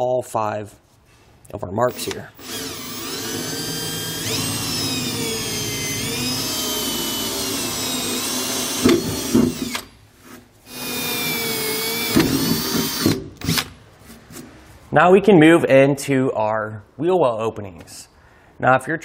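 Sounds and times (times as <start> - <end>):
cordless drill whining: 1.9 - 9.9, 10.7 - 13.7.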